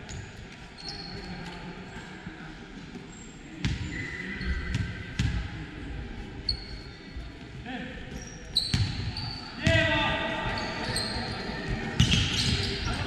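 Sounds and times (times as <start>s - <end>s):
basketball bouncing on court: 8.6s - 9.9s, 11.8s - 12.7s.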